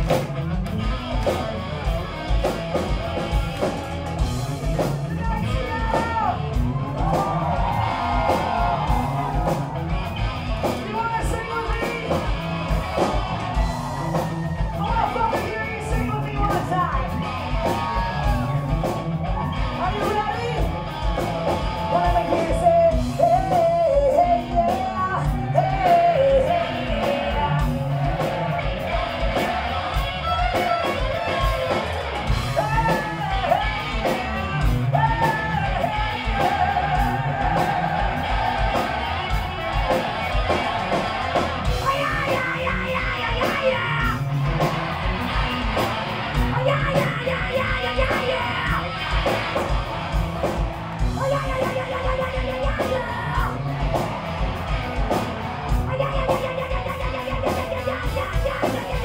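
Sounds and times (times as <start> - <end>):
bass guitar: 0.0 - 59.0
electric guitar: 0.0 - 59.0
steady drum beat: 0.0 - 59.0
man singing high shouted vocals: 21.9 - 28.0, 32.6 - 38.7, 41.8 - 44.2, 46.5 - 49.0.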